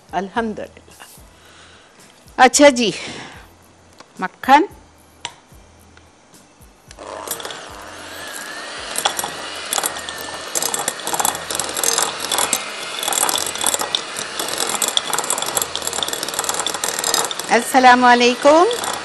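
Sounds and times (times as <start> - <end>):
electric hand mixer whirring: 6.9 - 19.0.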